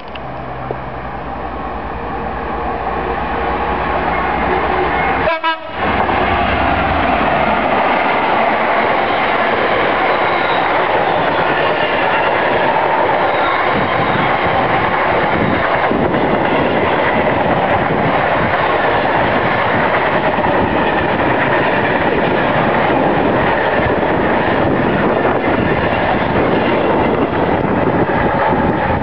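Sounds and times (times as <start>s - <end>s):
train wheels clattering on rails: 5.8s - 29.0s.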